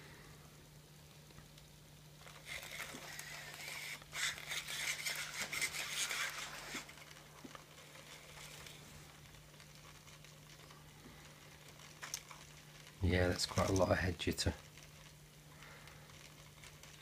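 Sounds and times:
robot servo motors whirring: 2.4 - 6.9.

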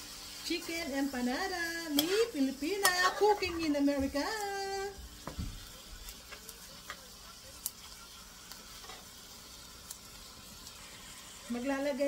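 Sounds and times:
chicken sizzling in a frying pan: 0.0 - 12.0
metal spoon clicking against pan: 1.9 - 2.2.

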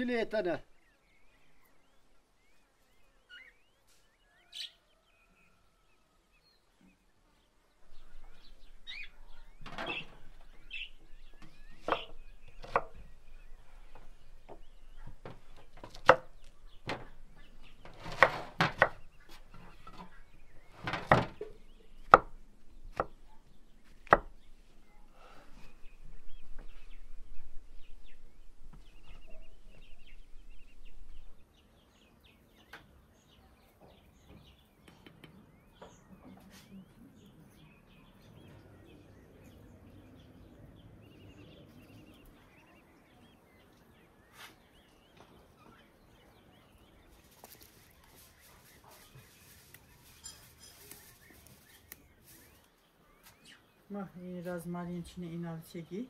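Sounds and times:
faint bird chirps: 0.6 - 54.2
knife chopping on wooden board: 11.4 - 13.0, 15.2 - 17.0, 17.8 - 20.0, 24.0 - 24.3.

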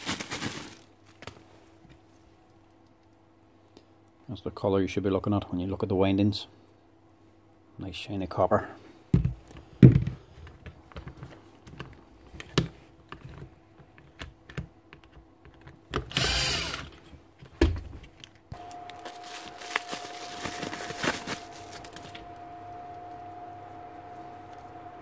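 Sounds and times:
faint hum: 0.0 - 25.0
parts clicking and tapping: 9.2 - 17.0
cordless drill spinning: 16.1 - 17.0.

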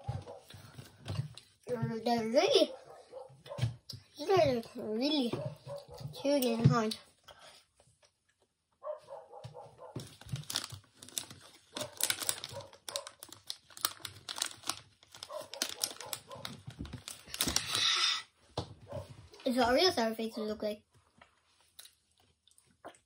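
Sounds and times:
plastic wrapper crinkling: 10.0 - 17.9.

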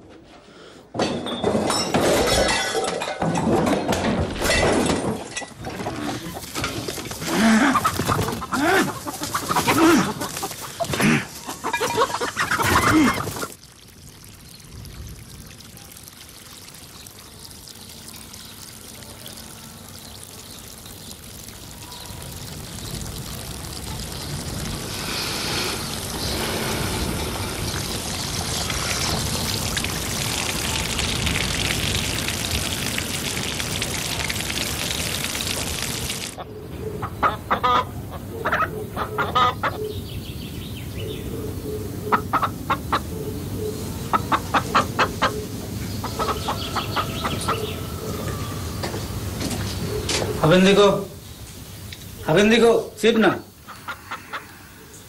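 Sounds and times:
hens clucking: 5.8 - 13.6, 36.4 - 39.9, 42.0 - 50.9, 53.6 - 54.6.

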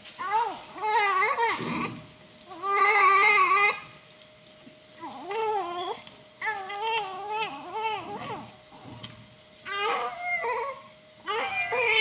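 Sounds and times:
newborn baby crying: 9.7 - 12.0.

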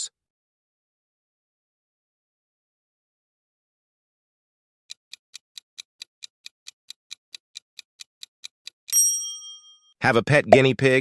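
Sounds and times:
clock-like ticking: 4.9 - 9.0
ringing ding: 8.9 - 9.9.

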